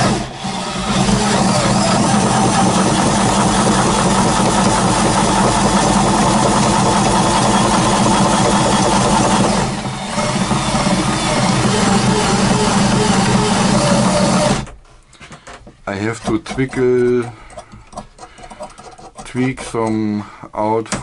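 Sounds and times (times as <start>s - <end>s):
cordless drill spinning: 0.0s - 14.7s
wooden gears grinding: 0.0s - 14.8s, 16.0s - 20.1s.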